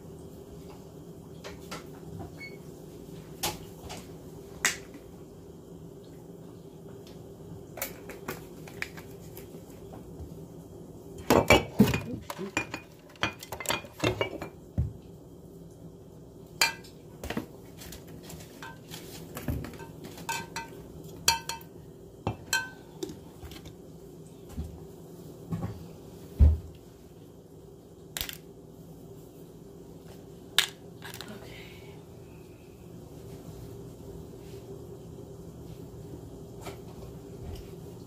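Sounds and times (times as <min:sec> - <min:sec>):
low steady hum: 0:00.0 - 0:38.0
metal utensils clinking: 0:19.7 - 0:21.7, 0:22.4 - 0:22.8.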